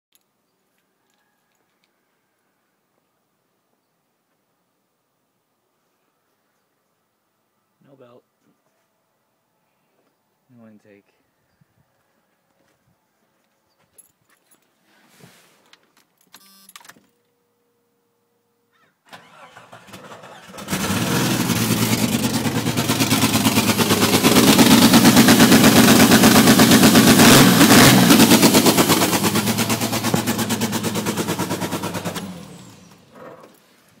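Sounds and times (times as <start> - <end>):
car engine starting and running: 19.1 - 33.6.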